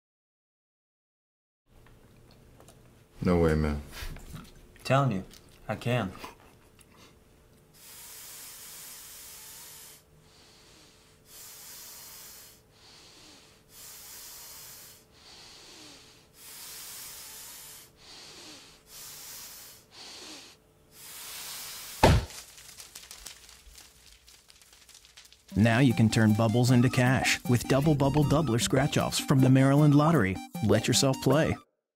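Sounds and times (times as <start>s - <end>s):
hissing breaths out: 7.8s - 25.5s
paper fluttering crackle: 21.3s - 25.7s.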